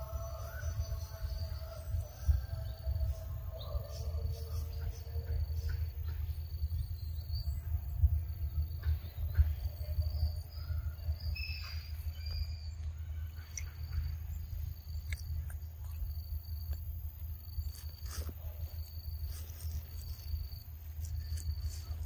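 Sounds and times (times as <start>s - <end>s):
wind on microphone: 0.0s - 13.2s.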